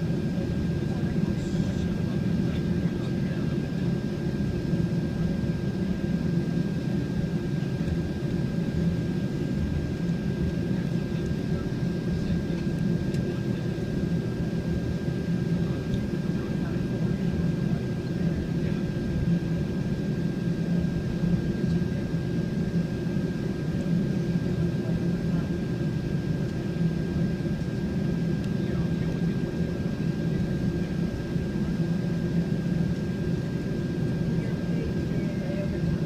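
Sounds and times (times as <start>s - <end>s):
aircraft interior rumble: 0.0s - 36.0s
thin steady whine: 0.0s - 36.0s.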